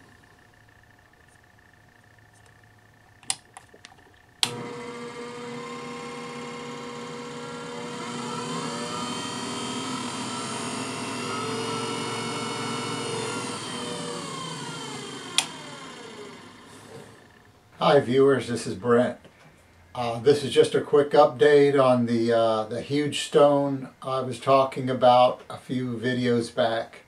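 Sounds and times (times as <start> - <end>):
motor whine: 0.0 - 17.8
motor switch click: 3.2 - 4.7, 14.3 - 15.9.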